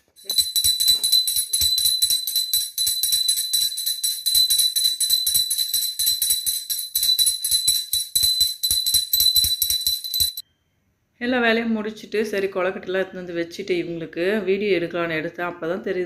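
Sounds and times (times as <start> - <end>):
hand bell ringing fast: 0.1 - 10.4.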